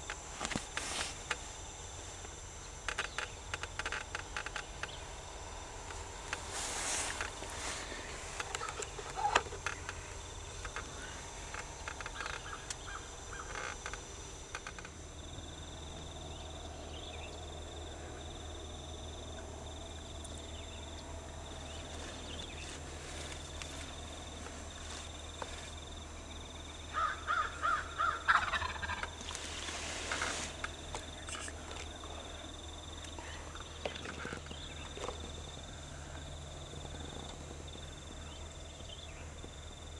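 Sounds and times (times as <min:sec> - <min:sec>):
turkey gobbling: 0:08.5 - 0:09.5, 0:27.0 - 0:29.1.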